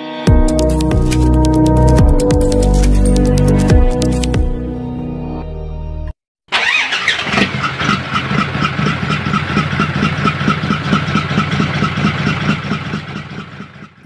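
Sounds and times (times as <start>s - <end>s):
truck engine idling: 7.6s - 14.0s.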